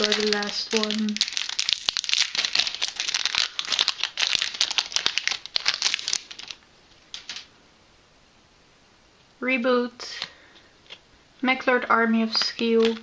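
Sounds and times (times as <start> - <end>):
foil wrapper crinkling: 0.0 - 7.5.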